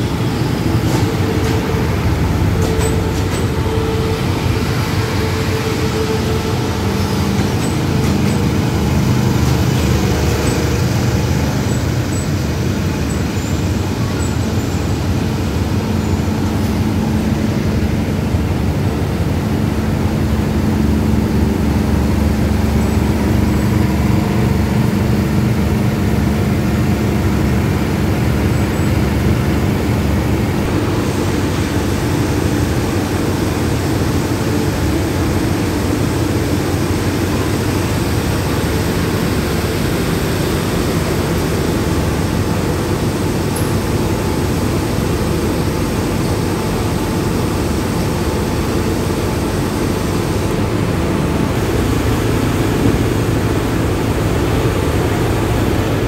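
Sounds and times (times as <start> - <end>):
idling diesel train engines: 0.0 - 56.0.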